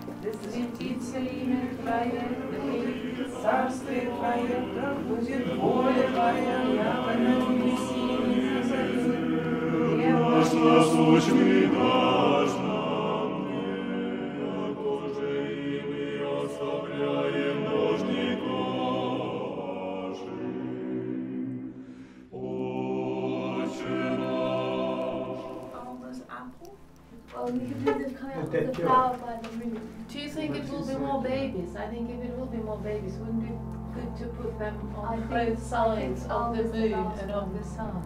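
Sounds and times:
voices singing a prayer chant: 0.0s - 38.0s.

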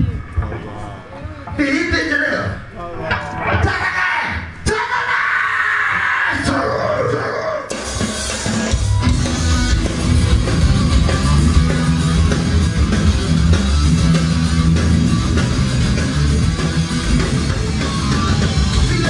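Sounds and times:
rock music with guitar and drums: 7.7s - 19.0s.

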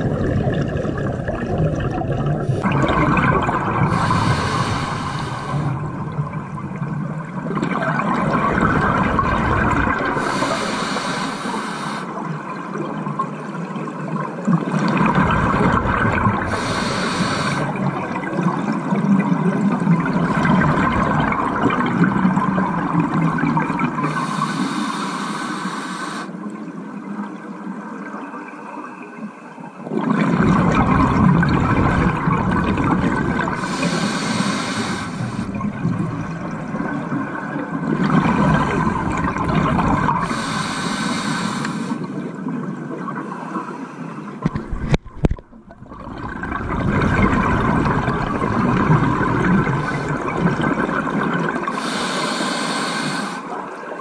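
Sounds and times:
underwater bubbling and rumbling: 0.0s - 28.6s, 29.2s - 54.0s
scuba regulator breaths hissing: 3.9s - 5.8s, 10.2s - 12.2s, 16.5s - 17.8s, 24.0s - 26.4s, 33.6s - 35.6s, 40.1s - 42.1s, 51.7s - 53.6s.

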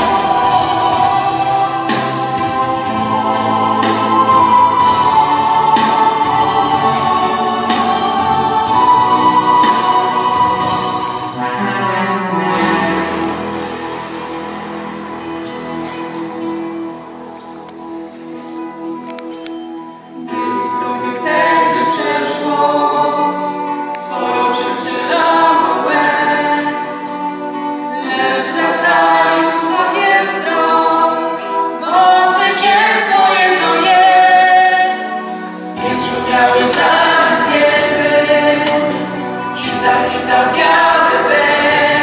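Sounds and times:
mixed choir singing: 0.0s - 11.7s, 20.3s - 42.0s.

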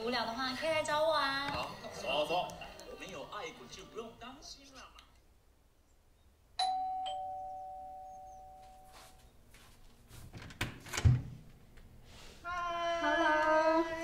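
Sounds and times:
two-note chime: 6.6s - 9.2s.

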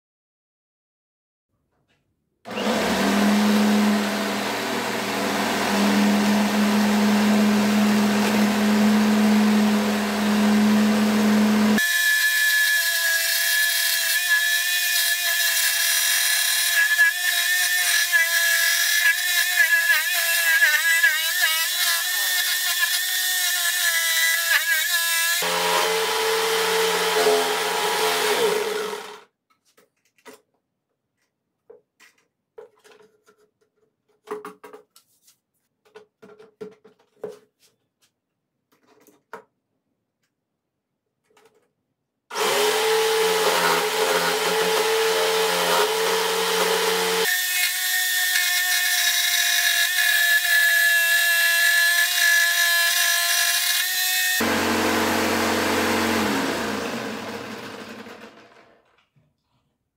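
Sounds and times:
jigsaw cutting board: 2.5s - 29.3s, 42.3s - 59.0s.

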